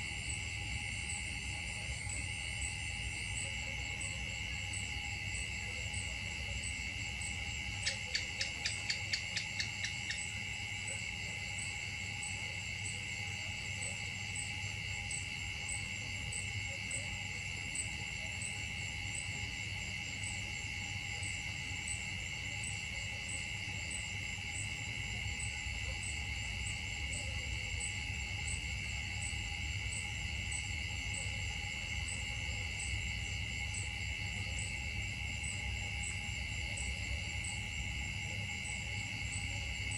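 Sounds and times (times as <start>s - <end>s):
insect chorus buzzing: 0.0s - 39.9s
sharp insect chirps: 6.7s - 11.0s.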